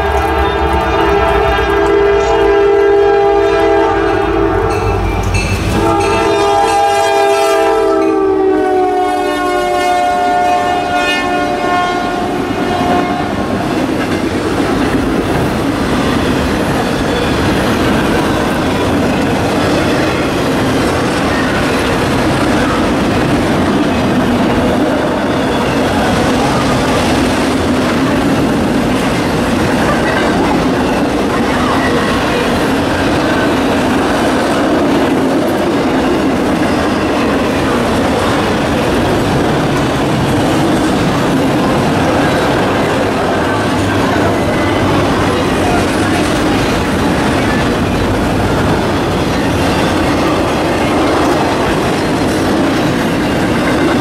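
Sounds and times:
locomotive air horn chord: 0.0 - 5.0, 5.7 - 13.5
freight cars rumbling on rails: 0.0 - 54.0.

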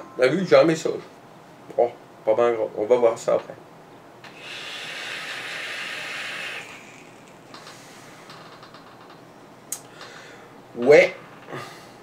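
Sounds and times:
coil sizzling: 4.2 - 8.0
air hiss through atomiser: 4.2 - 8.4.

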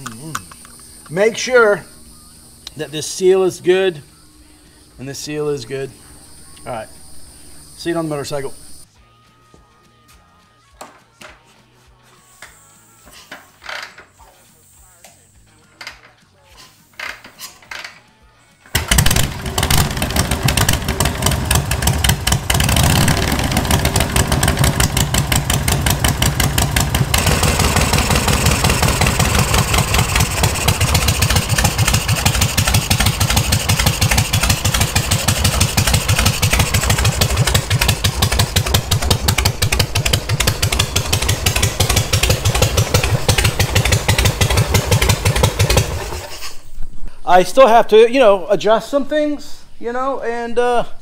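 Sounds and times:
motorcycle engine idling: 0.0 - 8.9, 18.6 - 46.3.

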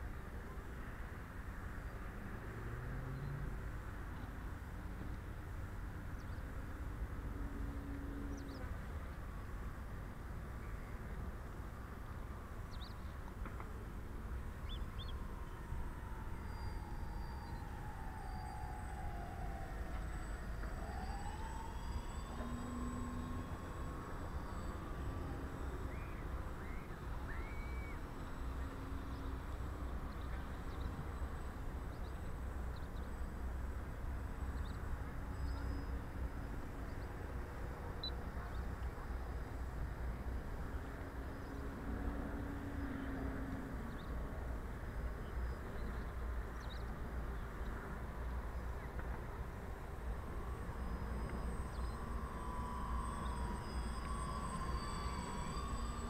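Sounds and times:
distant hum of model aircraft motors: 0.0 - 56.0
faint high bird chirps: 14.6 - 33.3, 34.5 - 37.2, 50.2 - 56.0
steady low rumble: 43.4 - 56.0.

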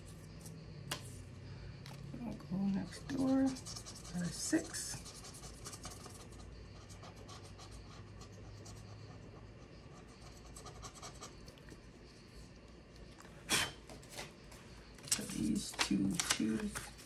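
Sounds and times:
pen scratching on paper: 2.7 - 11.4
paper rustling: 15.0 - 17.0.

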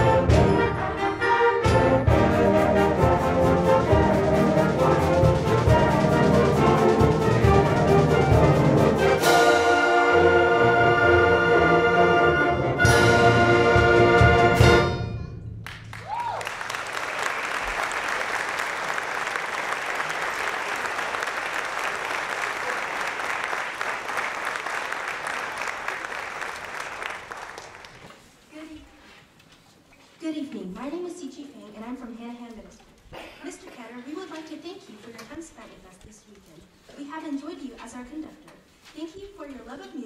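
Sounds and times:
concert band playing brass chords: 0.0 - 15.2
audience applause: 15.7 - 28.1.

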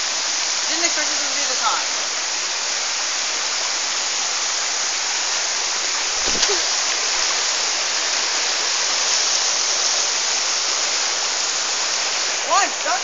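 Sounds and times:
stream flowing over stones: 0.0 - 13.0
short thump: 6.2 - 6.6.

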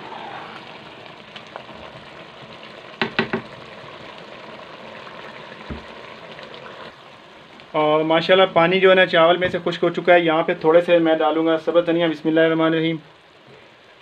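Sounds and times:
rice simmering and sizzling in pot: 0.0 - 14.0
sharp knocks: 3.0 - 3.5.

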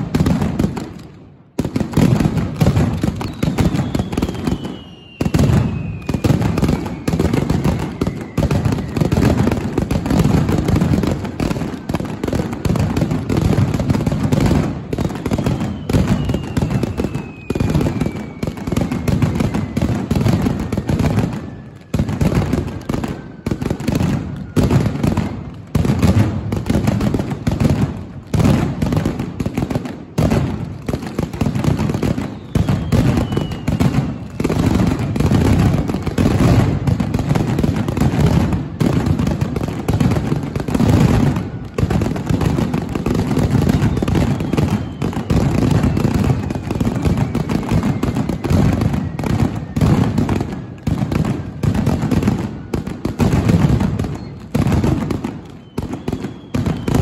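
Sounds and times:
firecracker bangs barrage: 0.0 - 57.0
high descending whistle: 3.2 - 7.2.

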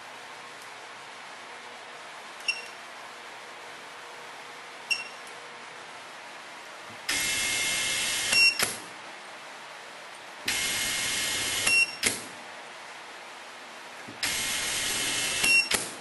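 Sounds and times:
short beeps: 2.5 - 2.7, 4.9 - 5.2.

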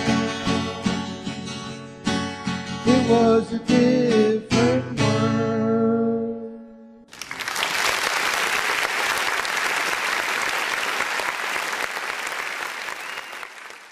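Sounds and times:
audience clapping: 7.1 - 13.9.

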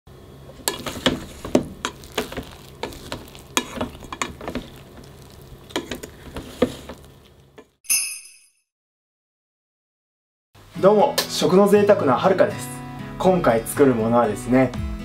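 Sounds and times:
paddle scraping rice in pot: 0.5 - 7.4.

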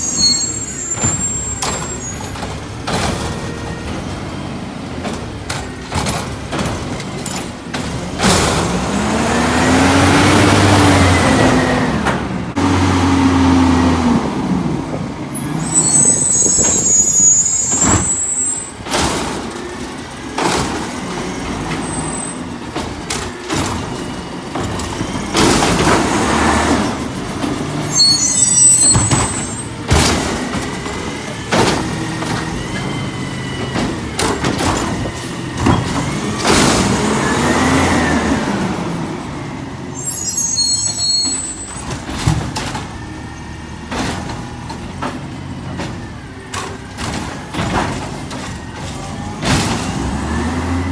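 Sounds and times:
clanks and knocks from cart: 1.0 - 9.0, 17.6 - 28.0, 28.6 - 37.3, 41.2 - 50.9
garbage truck engine revving: 2.4 - 18.0, 18.6 - 40.1, 41.3 - 50.9.

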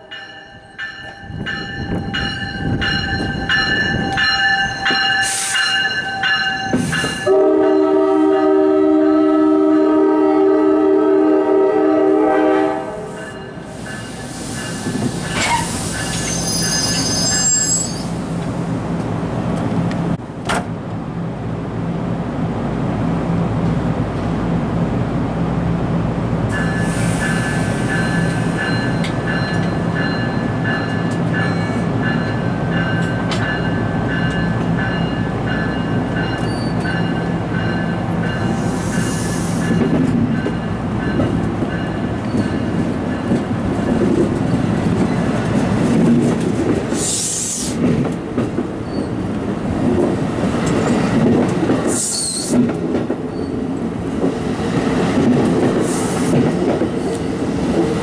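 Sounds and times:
train coaches rumbling past: 0.0 - 58.0
high wheel squeals: 14.7 - 18.2, 36.4 - 36.9.

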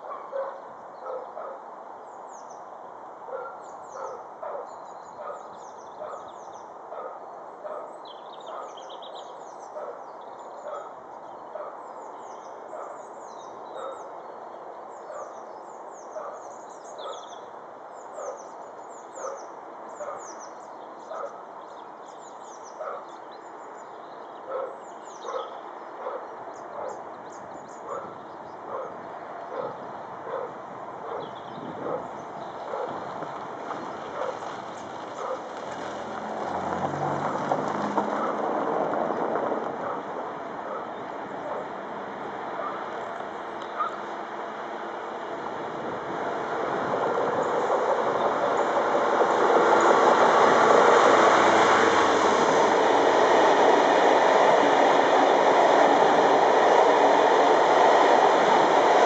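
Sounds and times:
birds chirping: 0.0 - 35.4, 42.5 - 44.2
distant diesel locomotive rumble: 24.8 - 59.0.

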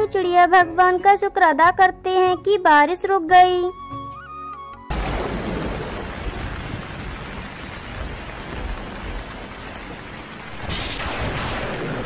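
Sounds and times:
heavy rain pouring: 4.9 - 12.0
low rumble of thunder: 4.9 - 12.0.

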